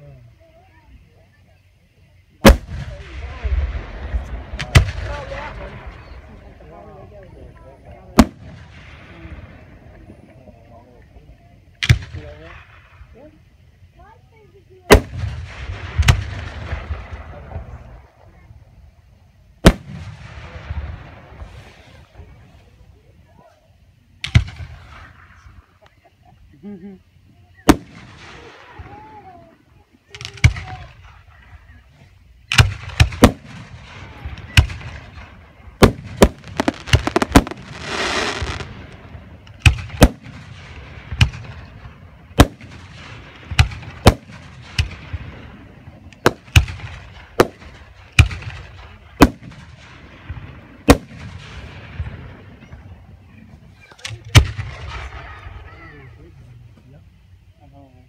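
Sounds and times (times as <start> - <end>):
firework hiss: 2.3 - 10.0, 11.8 - 57.6
firework shells bursting: 19.6 - 22.2, 32.4 - 53.0.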